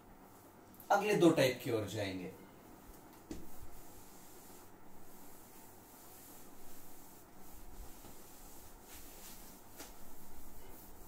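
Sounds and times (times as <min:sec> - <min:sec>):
duster wiping a whiteboard: 0:03.2 - 0:11.0.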